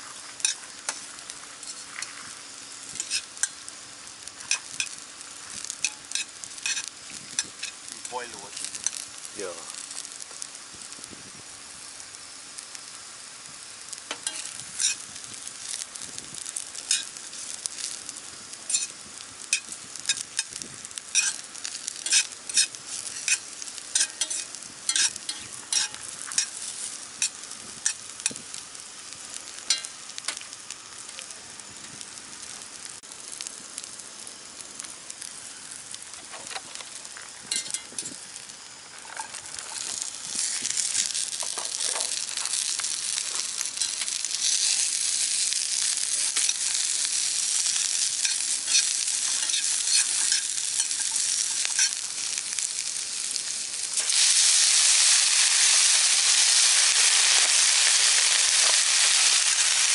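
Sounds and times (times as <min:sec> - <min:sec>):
mushrooms sizzling in frying pan: 0:00.0 - 0:59.9
tongs clicking and scraping pan: 0:00.4 - 0:02.2, 0:02.9 - 0:03.7, 0:04.4 - 0:05.0, 0:05.6 - 0:09.0, 0:14.1 - 0:15.0, 0:16.8 - 0:17.9, 0:18.7 - 0:28.4, 0:29.6 - 0:30.4, 0:37.5 - 0:38.2, 0:39.0 - 0:52.9.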